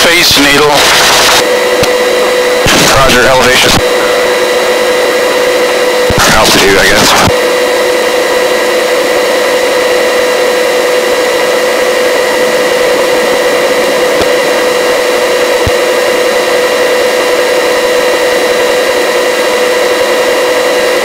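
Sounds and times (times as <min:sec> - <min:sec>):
helicopter cabin whine and hiss: 0:00.0 - 0:21.0.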